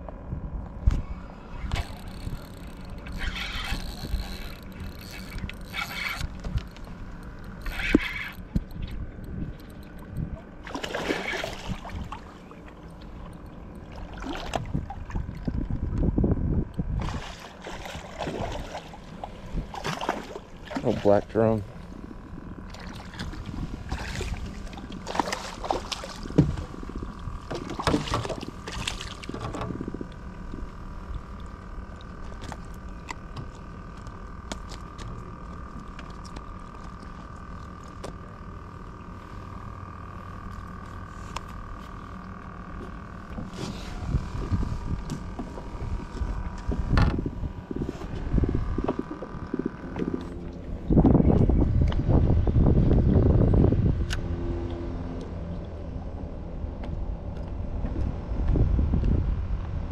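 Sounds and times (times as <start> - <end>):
faint hum: 0.0 - 59.9
fish splashing in water: 22.7 - 26.7
knocks on a boat: 26.3 - 26.7.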